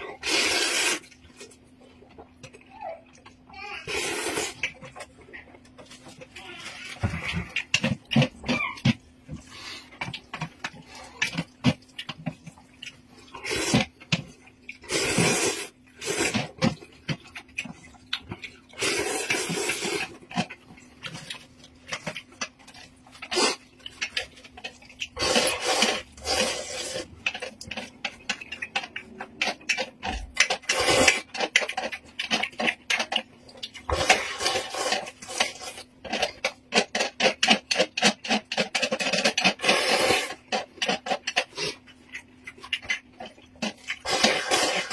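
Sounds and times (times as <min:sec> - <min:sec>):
chewing: 0:00.0 - 0:44.9
person slurping noodles: 0:00.1 - 0:01.1, 0:03.9 - 0:04.6, 0:13.3 - 0:13.9, 0:14.8 - 0:16.6, 0:18.8 - 0:20.1, 0:25.1 - 0:27.1, 0:30.7 - 0:31.3, 0:39.4 - 0:40.4, 0:44.0 - 0:44.9.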